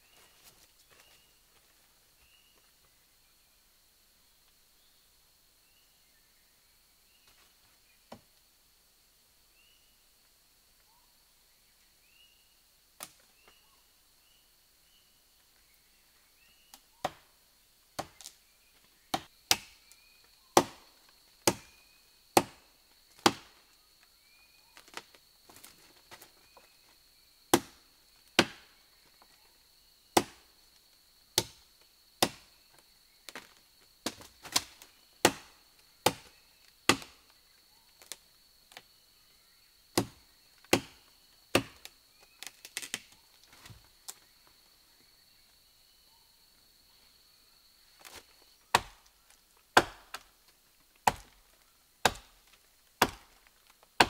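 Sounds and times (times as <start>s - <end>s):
insect drone: 0.0s - 54.0s
machete chopping wood: 17.0s - 17.3s, 18.0s - 18.3s, 19.1s - 19.9s, 20.6s - 22.6s, 23.2s - 23.6s, 27.5s - 27.8s, 28.4s - 28.8s, 30.2s - 30.5s, 31.4s - 31.6s, 32.2s - 32.5s, 33.3s - 37.3s, 40.0s - 43.0s, 48.0s - 49.1s, 49.8s - 50.3s, 51.0s - 51.4s, 52.0s - 53.4s.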